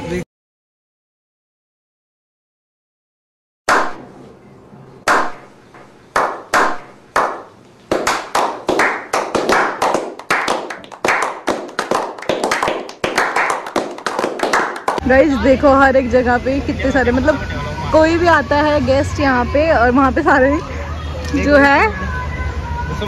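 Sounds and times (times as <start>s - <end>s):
hand clapping: 5.1s - 5.4s, 6.2s - 15.0s.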